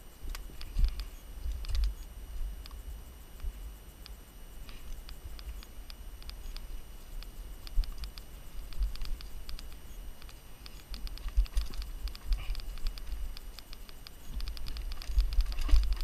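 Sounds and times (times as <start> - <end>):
bike clicks and rattles: 7.2 - 16.0.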